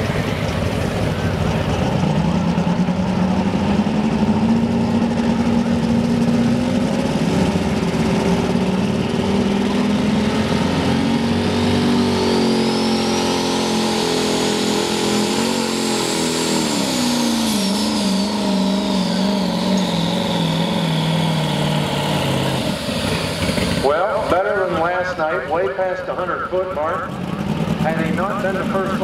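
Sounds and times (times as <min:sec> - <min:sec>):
high whine: 0:00.0 - 0:29.0
truck engine running hard: 0:00.0 - 0:29.0.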